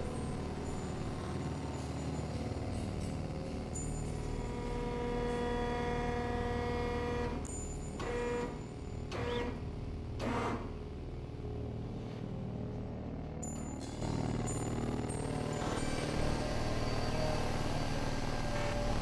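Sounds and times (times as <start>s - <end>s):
board press motor hum: 14.0s - 19.0s.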